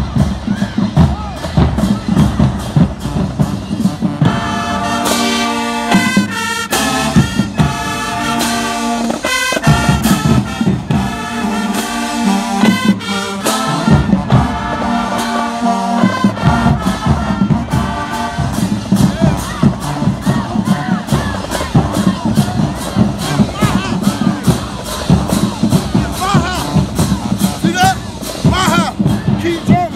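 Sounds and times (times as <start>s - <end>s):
drums hitting: 0.0s - 5.3s, 16.0s - 29.9s
marching band brass chords: 0.0s - 29.9s.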